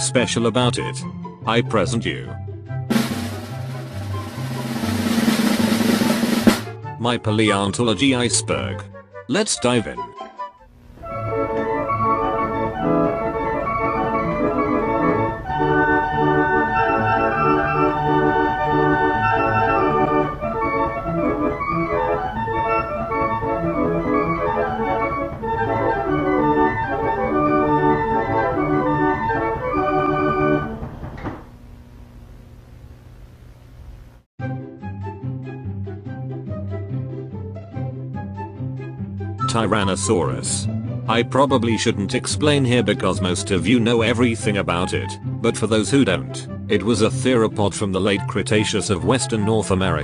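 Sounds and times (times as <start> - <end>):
organ melody: 0.6 - 31.7.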